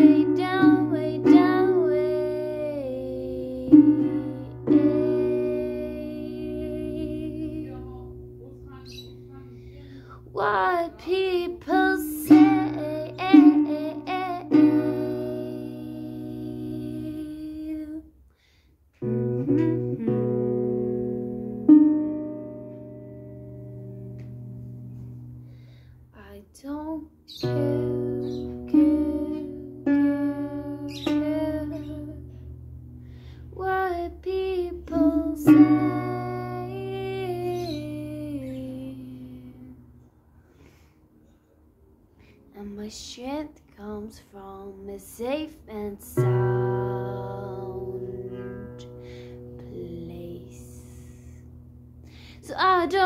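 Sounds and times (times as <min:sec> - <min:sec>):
woman singing: 0:00.0 - 0:08.3, 0:09.4 - 0:18.1, 0:26.2 - 0:32.4, 0:33.5 - 0:39.9, 0:42.6 - 0:49.0, 0:49.6 - 0:51.4, 0:52.4 - 0:53.0
acoustic guitar strumming: 0:19.0 - 0:25.6.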